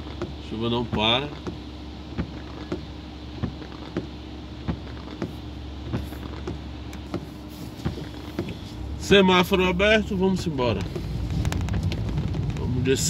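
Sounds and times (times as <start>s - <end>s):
turn signal clicking: 0.0s - 8.8s, 10.2s - 12.7s
car engine idling: 0.0s - 13.0s.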